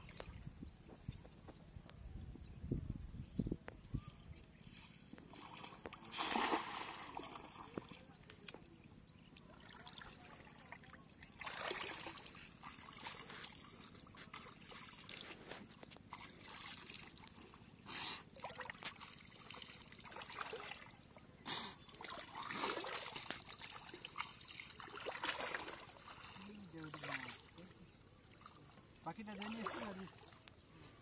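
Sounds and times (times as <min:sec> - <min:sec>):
water splashing and trickling: 0:00.0 - 0:01.4, 0:03.8 - 0:31.0.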